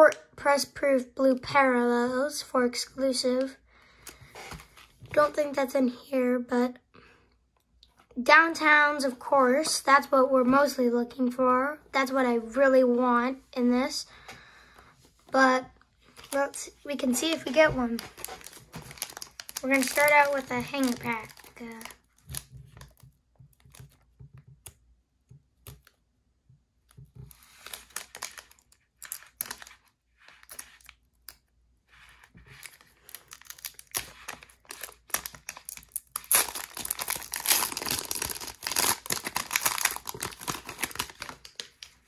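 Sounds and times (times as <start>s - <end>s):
plastic wrapper rustling: 16.2s - 23.0s, 27.2s - 31.0s, 31.9s - 42.0s
plastic wrapper tearing: 17.2s - 23.0s, 27.3s - 31.4s, 32.1s - 42.0s.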